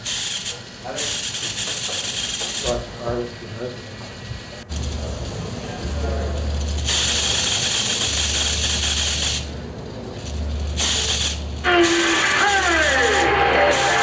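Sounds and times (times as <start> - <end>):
low electrical hum: 2.6 - 14.0
loud hiss: 10.8 - 14.0.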